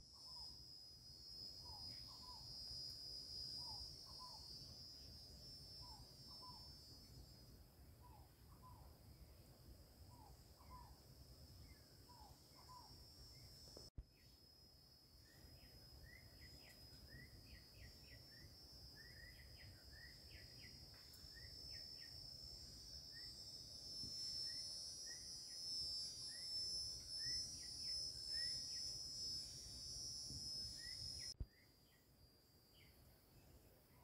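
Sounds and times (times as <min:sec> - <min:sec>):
high-pitched insect drone: 0:00.0 - 0:33.7
bird chirping: 0:15.2 - 0:22.2, 0:24.3 - 0:32.1.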